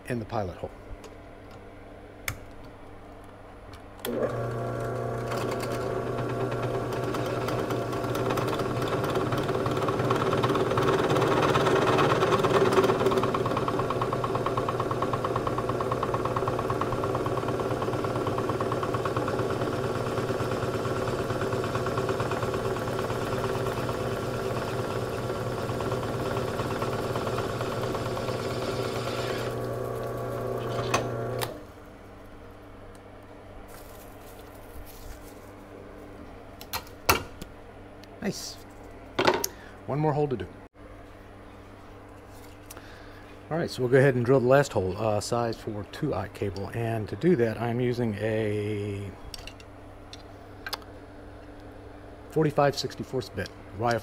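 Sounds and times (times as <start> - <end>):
drill press motor drilling: 4.0 - 31.6.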